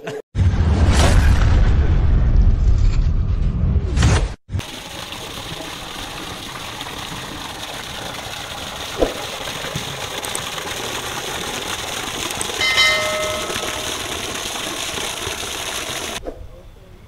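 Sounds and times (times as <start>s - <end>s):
water splashing into a pool: 4.5s - 16.2s
bell-like chime: 12.6s - 14.0s.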